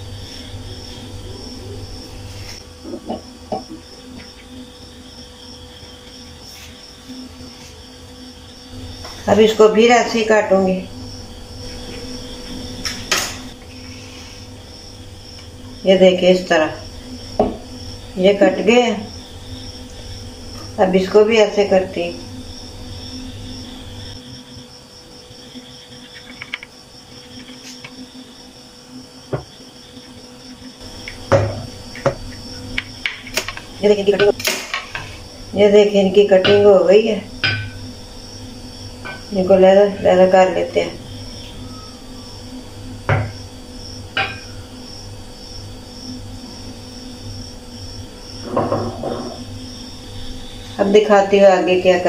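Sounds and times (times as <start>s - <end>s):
pulsing machine hum: 0.0s - 52.0s
knocks on plate: 31.3s - 32.2s, 37.4s - 37.8s, 43.1s - 43.4s
faint high-pitched tone: 41.5s - 42.4s.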